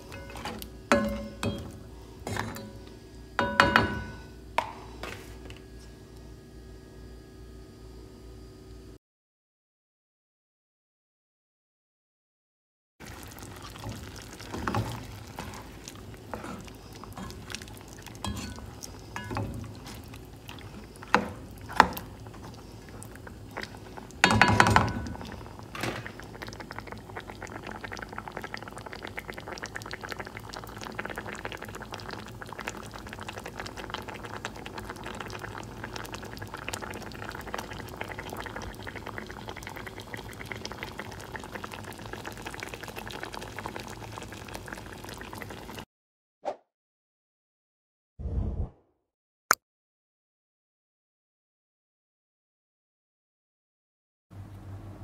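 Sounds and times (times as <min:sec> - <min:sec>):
cookware knocking and clinking: 0:00.2 - 0:01.7, 0:03.4 - 0:04.2, 0:24.3 - 0:25.0
sauce bubbling in a pan: 0:13.0 - 0:45.9.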